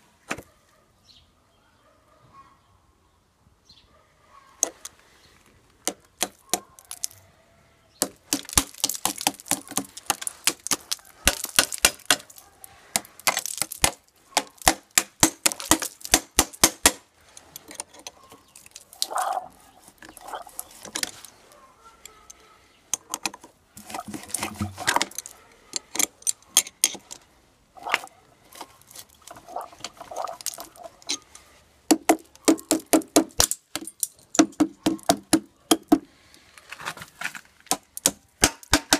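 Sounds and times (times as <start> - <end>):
metal tools cracking ice: 5.9 - 7.2, 8.0 - 19.4, 22.0 - 31.5, 32.1 - 35.3, 37.0 - 38.9.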